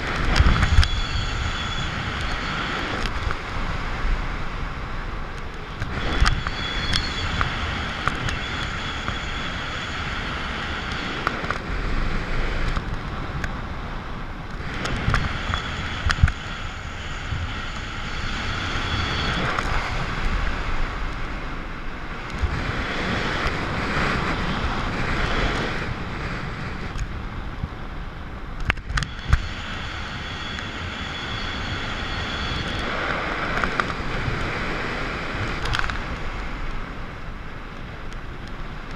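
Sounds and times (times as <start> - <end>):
wind rushing over microphone: 0.0 - 38.9
faint high whistle: 0.6 - 2.8, 6.0 - 9.8.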